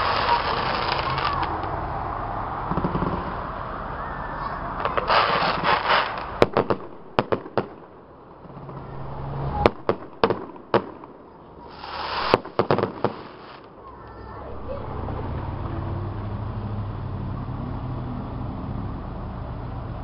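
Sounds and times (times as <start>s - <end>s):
firework bangs: 0.0s - 1.8s, 2.6s - 3.6s, 4.8s - 13.9s
firework crackling: 0.0s - 4.0s, 4.6s - 16.4s.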